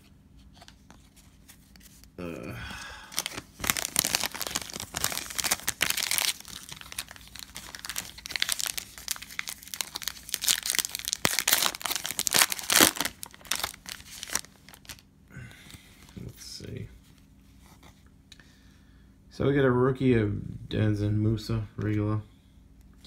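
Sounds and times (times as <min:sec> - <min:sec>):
foil wrapper tearing and crinkling: 0:03.1 - 0:15.0.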